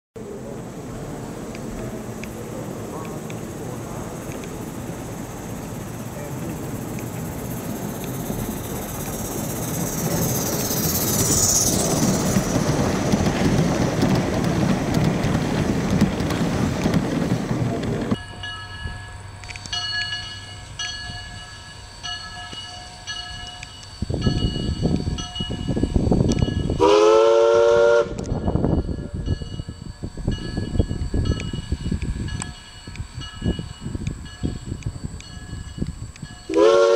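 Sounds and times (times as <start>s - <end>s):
steady steam rushing: 0.2s - 36.9s
locomotive exhaust chuffs: 0.4s - 36.9s
multi-tone steam whistle: 26.6s - 28.5s, 36.5s - 36.9s.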